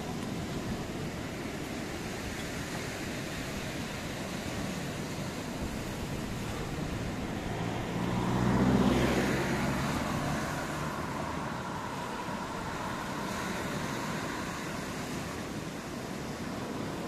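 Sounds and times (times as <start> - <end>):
surf: 0.0 - 17.0
wind: 0.0 - 17.0
vehicle driving past: 6.7 - 14.5.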